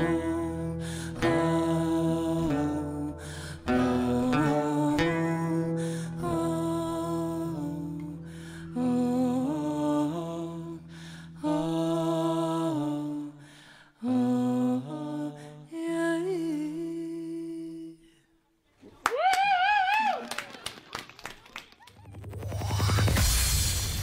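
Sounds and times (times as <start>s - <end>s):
person humming a melody: 0.0s - 13.4s.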